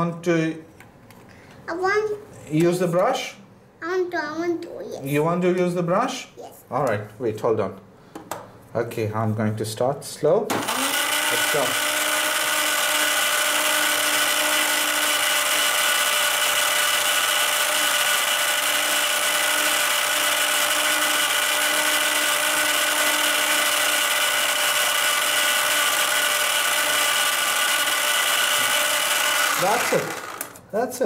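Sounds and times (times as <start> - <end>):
small electric motor whirring: 10.6 - 30.6.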